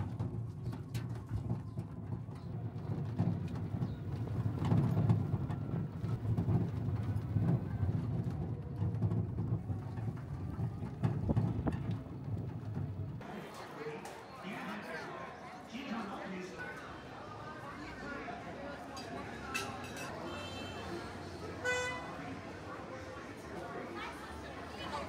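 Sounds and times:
cargo vehicle rumbling: 0.0 - 13.2
knocks and rattles: 0.0 - 13.2.

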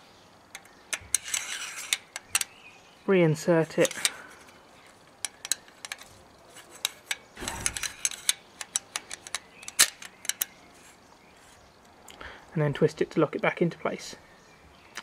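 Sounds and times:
metal clicks and scrapes: 0.5 - 2.6, 3.7 - 11.6
short rubbing scrape: 1.1 - 2.0.

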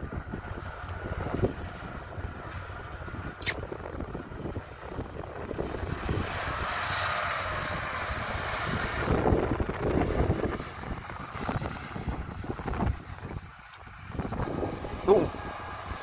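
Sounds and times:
tracked carrier engine running: 0.0 - 16.0
wind on microphone: 0.0 - 16.0
sharp click: 3.4 - 3.6.

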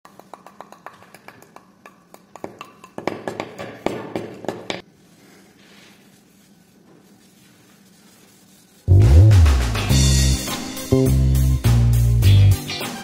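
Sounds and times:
tissue rubbing on paper: 4.9 - 10.3.

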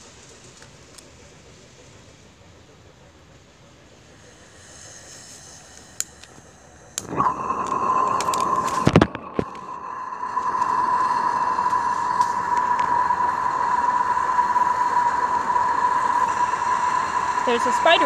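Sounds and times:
steam hissing with whistle tone: 3.8 - 18.0.

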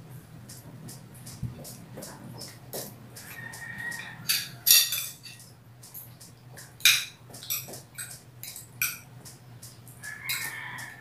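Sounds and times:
cutlery clinking on glass plates: 2.4 - 6.1, 6.8 - 9.1, 10.2 - 11.0.

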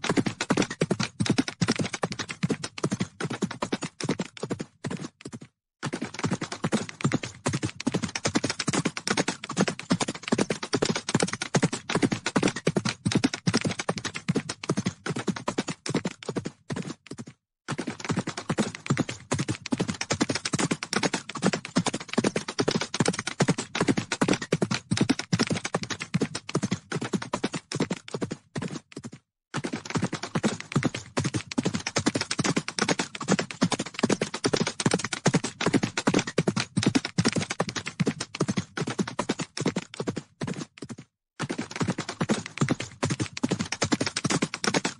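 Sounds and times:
herd of horses galloping: 0.0 - 44.9.

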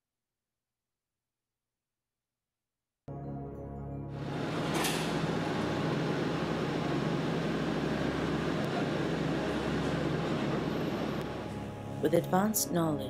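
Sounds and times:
low hum: 4.2 - 12.1
looms running: 4.3 - 11.6.

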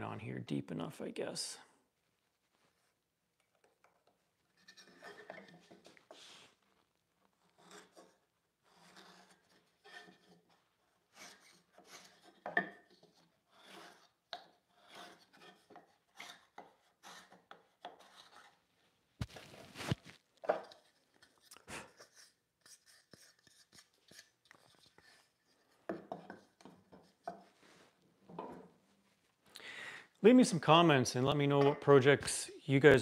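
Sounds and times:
steel tool scraping wood: 4.6 - 6.2, 7.4 - 18.7.

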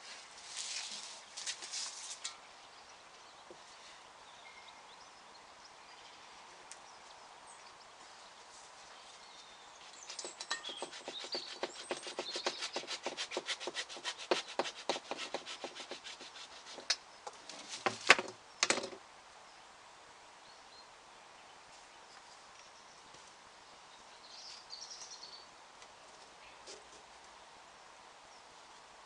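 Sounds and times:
hand saw cutting: 10.1 - 17.0.

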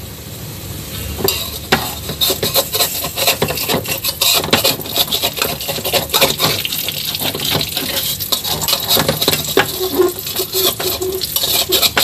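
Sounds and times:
fish sizzling in hot oil: 0.0 - 12.0
metal spatula scraping pan: 1.2 - 12.0.

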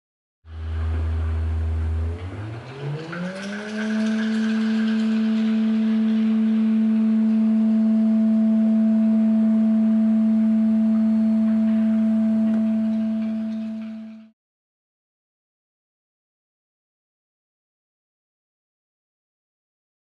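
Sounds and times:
electronic sine-tone drone: 4.0 - 14.3.

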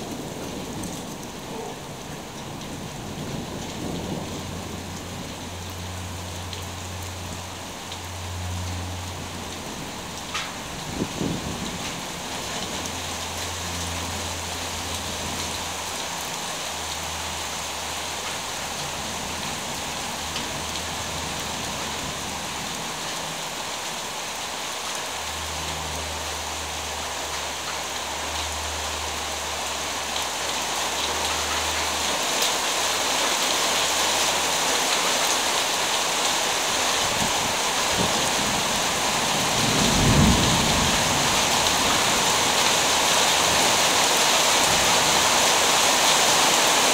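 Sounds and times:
distant thunder rumbles: 0.0 - 5.7, 37.9 - 42.3
heavy rain: 0.0 - 46.9
loud thunderclap: 39.5 - 41.3.

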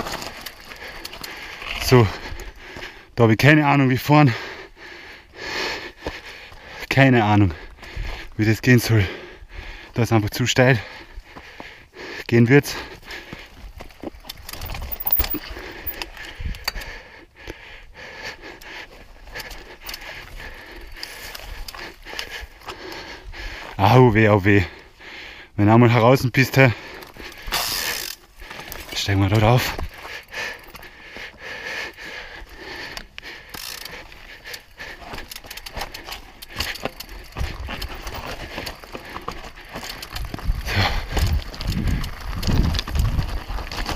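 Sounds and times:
bike chain rattling: 0.0 - 2.6, 13.0 - 17.0, 19.2 - 23.0, 26.6 - 31.0, 31.6 - 43.9
bike tyres crunching over gravel: 0.0 - 9.1, 12.6 - 16.4, 18.8 - 25.2, 25.8 - 43.9
chain and frame rattling: 13.9 - 16.6, 33.4 - 43.9.

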